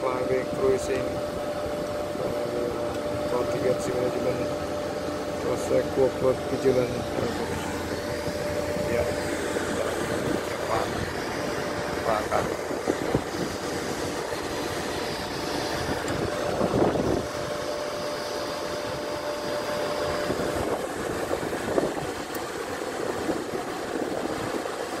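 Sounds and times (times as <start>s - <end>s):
helicopter engine rushing noise: 0.0s - 25.0s
steady engine whine: 0.0s - 25.0s.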